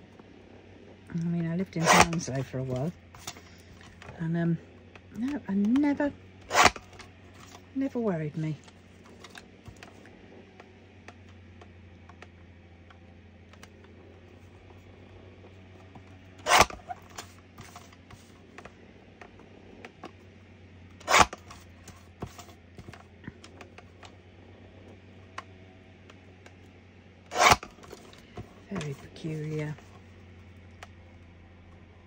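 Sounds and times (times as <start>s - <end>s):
paper trimmer slicing card: 1.6s - 4.2s, 5.2s - 7.6s, 16.4s - 18.3s, 20.9s - 23.1s, 27.3s - 29.9s.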